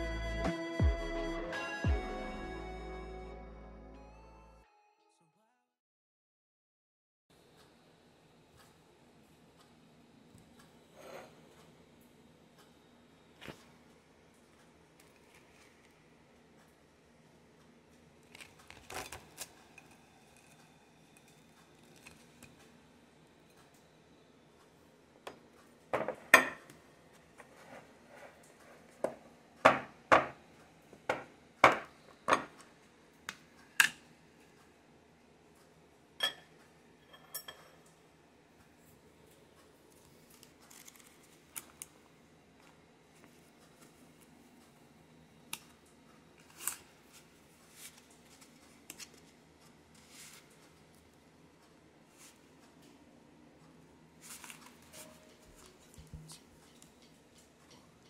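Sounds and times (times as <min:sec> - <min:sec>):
knife clinking on ceramic plate: 0:36.2 - 0:37.9.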